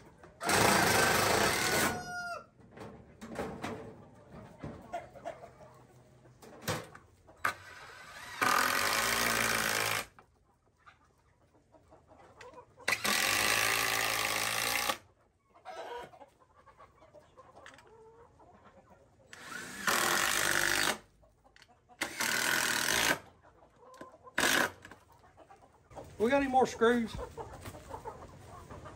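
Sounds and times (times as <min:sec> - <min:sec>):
cordless drill driving screws: 0:07.5 - 0:10.1, 0:12.9 - 0:15.0, 0:19.3 - 0:21.0, 0:22.0 - 0:23.2, 0:24.4 - 0:24.8.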